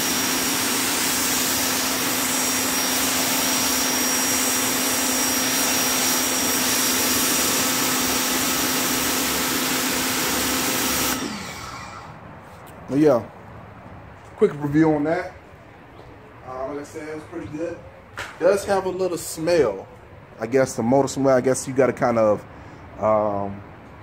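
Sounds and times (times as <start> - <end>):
water jet hissing on concrete: 0.0 - 12.0
pressure washer motor hum: 0.0 - 12.2.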